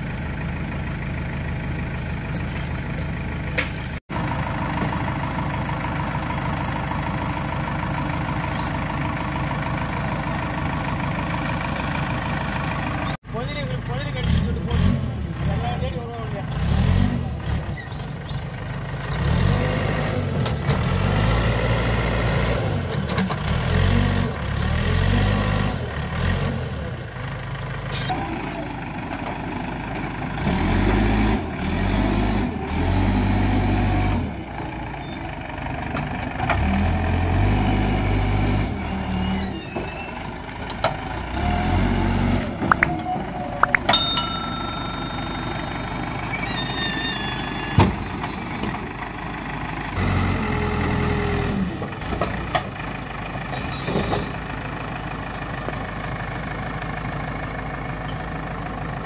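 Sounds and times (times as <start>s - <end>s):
diesel engine revving: 3.9s - 43.9s, 44.6s - 57.8s
brief high-pitched tone: 42.7s - 46.3s.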